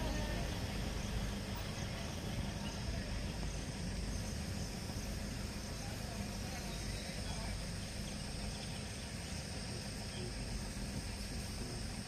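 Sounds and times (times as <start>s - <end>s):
constant low rumble: 0.0s - 12.0s
insects chirring: 0.0s - 12.0s.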